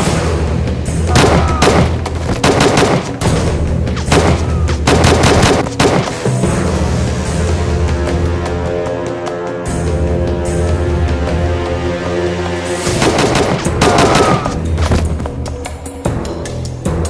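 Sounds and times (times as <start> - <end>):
action film music with bass: 0.0 - 17.0
rifle gunfire bursts: 1.2 - 3.2, 4.1 - 6.2, 13.0 - 14.4.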